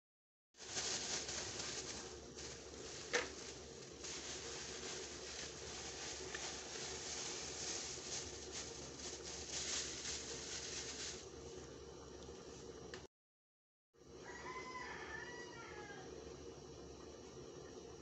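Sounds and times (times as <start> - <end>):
plastic bag crinkling: 0.6 - 11.3.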